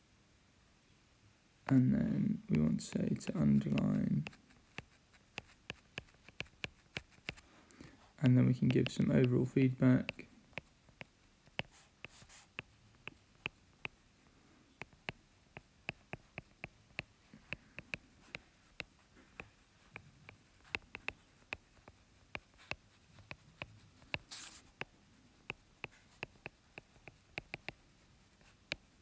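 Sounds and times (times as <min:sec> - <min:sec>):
stylus tapping on glass screen: 0:02.5 - 0:07.4, 0:08.5 - 0:09.4, 0:14.8 - 0:18.0, 0:25.5 - 0:27.8.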